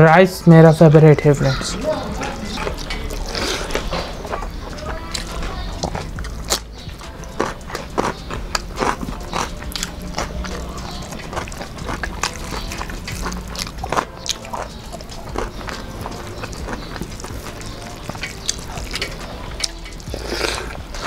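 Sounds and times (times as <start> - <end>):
crisp bites and chewing: 5.2 - 21.0.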